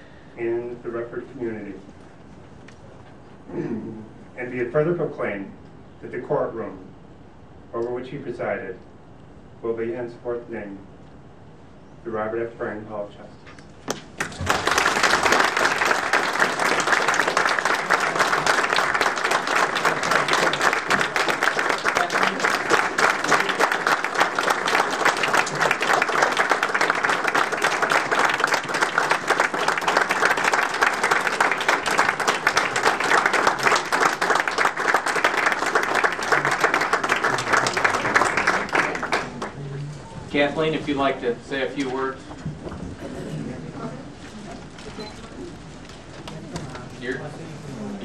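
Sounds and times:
audience applauding: 13.9 - 39.6.

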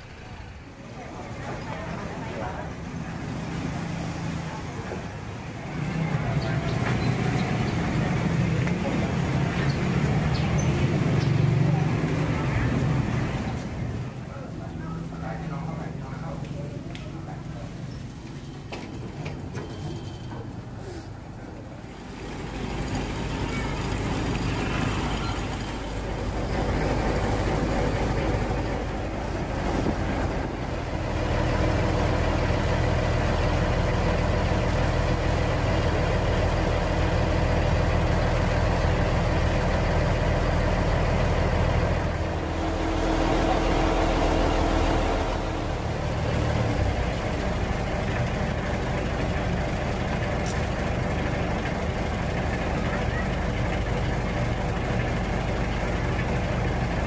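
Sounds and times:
large vehicle engine humming: 0.0 - 57.0
deep drone: 40.4 - 49.7.

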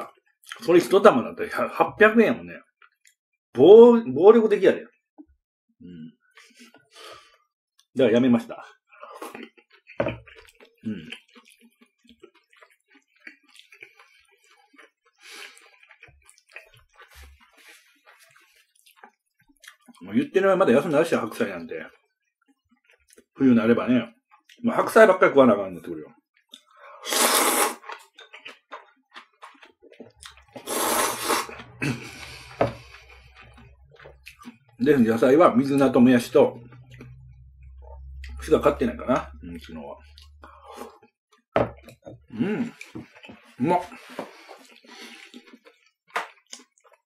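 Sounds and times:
chewing clicks: 9.2 - 20.1, 27.8 - 30.6, 31.5 - 35.0, 44.6 - 47.0
sipping sauce: 26.5 - 28.0, 29.4 - 34.9, 42.3 - 45.9
person slurping noodles: 27.0 - 27.9, 30.2 - 34.6, 42.3 - 45.6
low mouth sounds: 30.6 - 34.8, 42.0 - 43.1.

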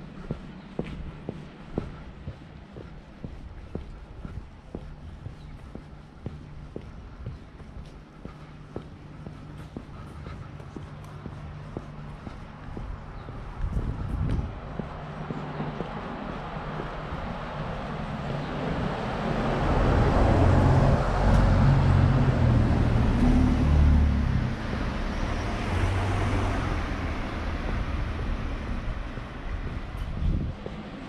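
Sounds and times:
car driving past: 15.4 - 30.1.

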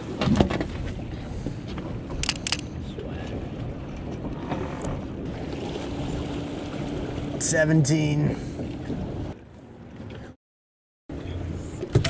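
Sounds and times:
wind and water noise: 0.0 - 10.4, 11.1 - 12.0
sharp clicks: 2.2 - 2.6.

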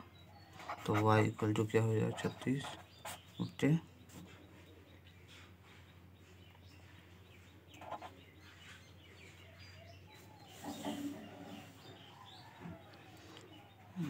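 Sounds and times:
faint bird chirps: 0.0 - 14.0.

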